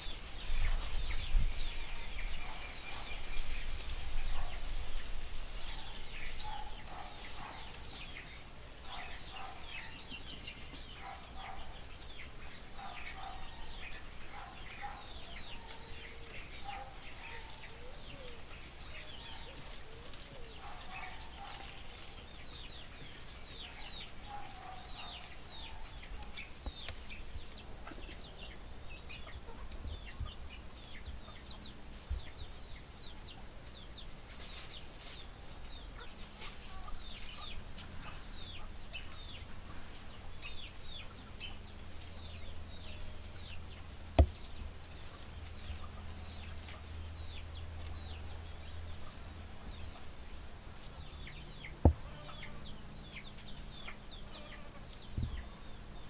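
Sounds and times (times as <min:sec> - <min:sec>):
small birds chirping: 0:00.0 - 0:56.0
bird clucking calls: 0:05.6 - 0:32.6.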